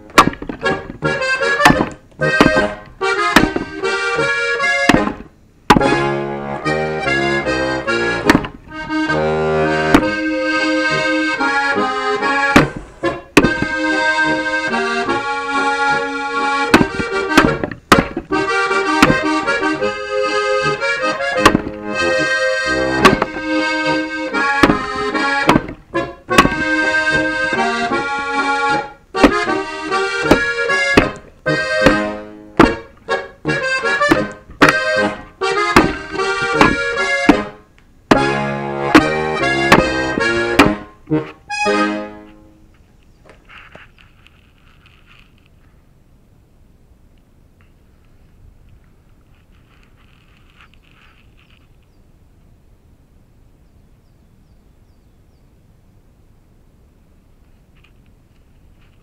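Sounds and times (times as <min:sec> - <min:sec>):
axe splitting firewood logs: 0:00.0 - 0:41.9
accordion music: 0:00.0 - 0:42.7.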